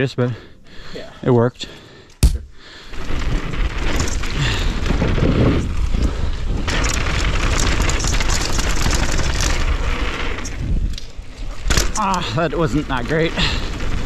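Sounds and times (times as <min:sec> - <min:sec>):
bike tyres on dirt: 0:02.2 - 0:14.0
wind buffeting microphone: 0:03.0 - 0:11.7.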